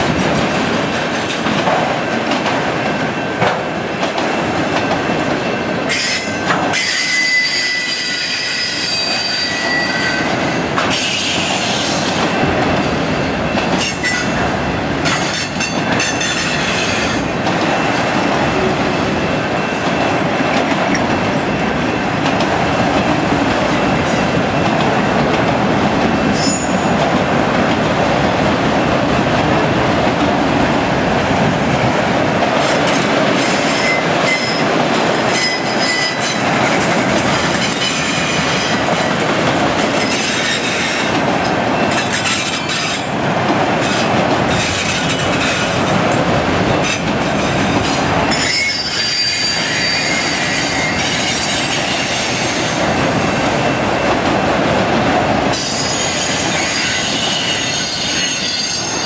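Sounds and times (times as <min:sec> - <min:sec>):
steel wheels rumbling on rail: 0:00.0 - 0:59.0
high wheel squeals: 0:05.9 - 0:10.3, 0:48.3 - 0:52.0, 0:55.6 - 0:59.0.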